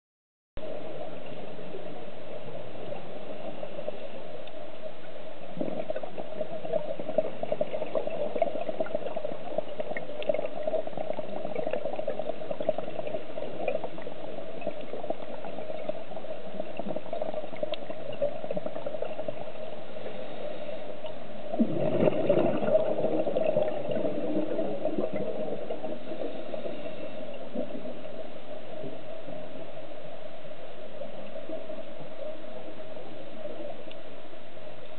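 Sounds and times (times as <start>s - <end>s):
muffled underwater noise: 0.6s - 34.9s
exhaled breath bubbling: 5.4s - 28.2s.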